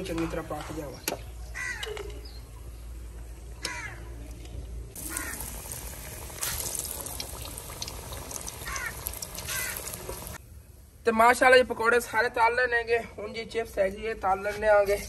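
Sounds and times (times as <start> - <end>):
oil sizzling and crackling: 4.9 - 10.4.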